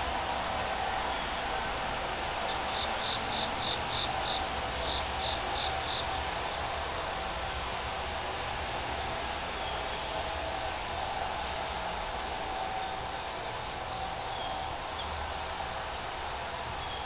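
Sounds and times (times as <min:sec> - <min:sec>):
steady outdoor hiss: 0:00.0 - 0:17.0
insect chirping: 0:02.5 - 0:06.1.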